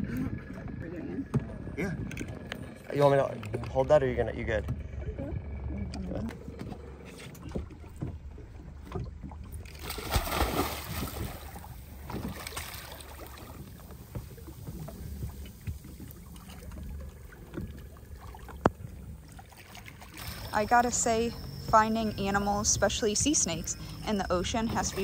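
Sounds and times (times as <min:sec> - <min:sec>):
steady low rumble: 0:00.0 - 0:25.0
splash and churning water: 0:07.2 - 0:20.6
swimming splashes: 0:07.2 - 0:21.1.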